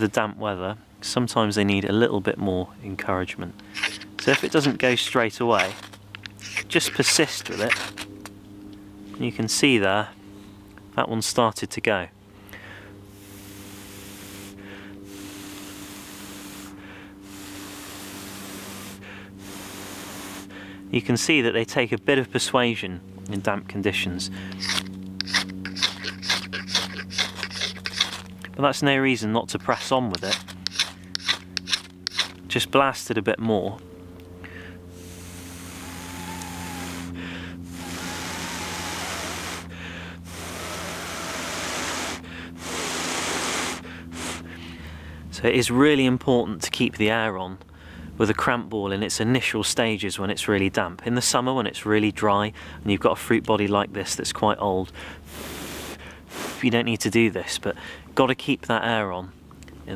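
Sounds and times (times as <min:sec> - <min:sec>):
breathing in: 0:12.3 - 0:15.6, 0:16.6 - 0:17.7, 0:19.0 - 0:19.6, 0:20.4 - 0:20.9, 0:34.4 - 0:41.1, 0:42.2 - 0:42.9, 0:43.8 - 0:45.3, 0:47.7 - 0:48.1, 0:52.6 - 0:52.8, 0:54.9 - 0:56.6, 0:57.8 - 0:58.1
breath blowing steadily: 0:12.6 - 0:20.9, 0:34.4 - 0:45.3, 0:55.0 - 0:56.7.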